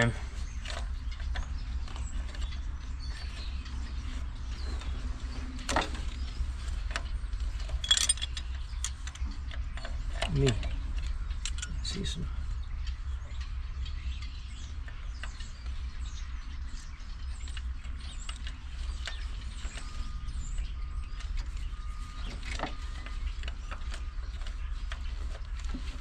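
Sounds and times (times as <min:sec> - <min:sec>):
steady low hum: 0:00.0 - 0:26.0
metallic clicks and scrapes of tools: 0:06.9 - 0:11.8.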